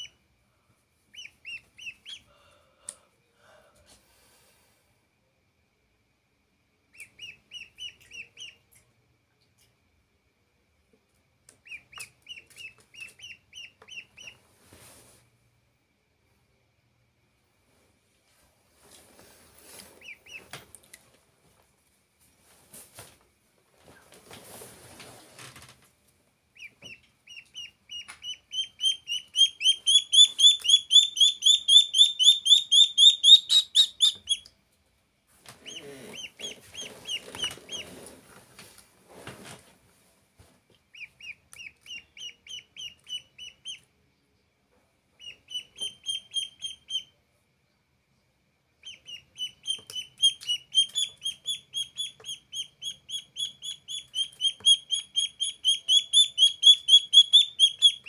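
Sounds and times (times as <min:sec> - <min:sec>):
duckling peeping: 0:00.0 - 0:00.2, 0:01.1 - 0:02.4, 0:06.9 - 0:08.9, 0:11.5 - 0:14.4, 0:19.8 - 0:20.6, 0:26.5 - 0:34.6, 0:35.5 - 0:38.0, 0:40.8 - 0:43.9, 0:45.2 - 0:47.2, 0:48.8 - 0:58.0.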